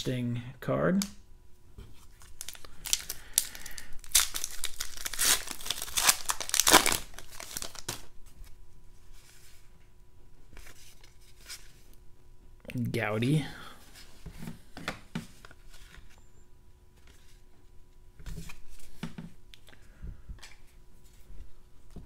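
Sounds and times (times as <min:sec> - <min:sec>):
cards rustling in hands: 0:01.9 - 0:09.7, 0:10.5 - 0:12.0
foil wrapper tearing and crinkling: 0:02.2 - 0:08.1.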